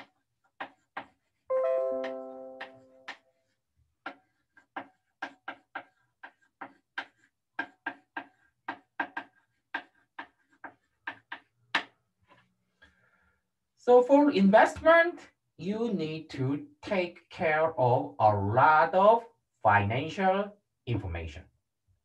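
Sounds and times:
bell-like chime: 0:01.5 - 0:03.0.

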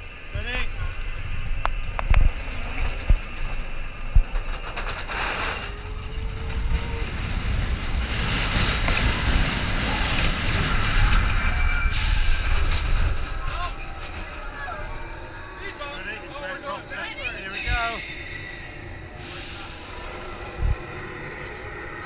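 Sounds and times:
roller coaster rumble and rattle: 0:00.0 - 0:22.0
rising hiss: 0:18.0 - 0:21.4.

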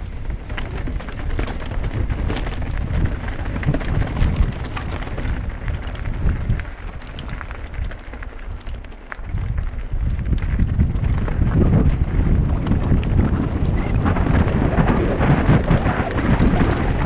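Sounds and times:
bike rattling: 0:00.0 - 0:17.0
wind buffeting microphone: 0:00.0 - 0:17.0
tyres crunching on stones: 0:00.2 - 0:17.0.

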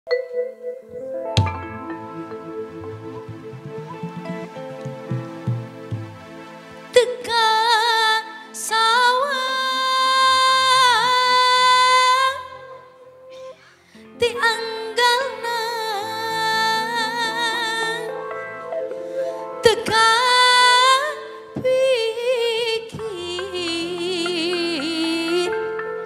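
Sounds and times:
sustained keyboard chords: 0:00.1 - 0:12.6, 0:14.0 - 0:26.0
woman singing with vibrato: 0:06.9 - 0:13.2, 0:14.1 - 0:18.2, 0:19.6 - 0:25.8.

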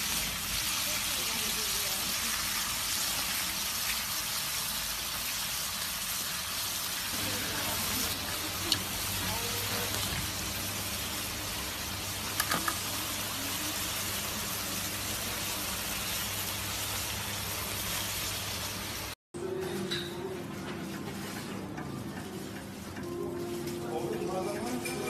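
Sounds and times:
meat sizzling in butter: 0:00.0 - 0:19.2.

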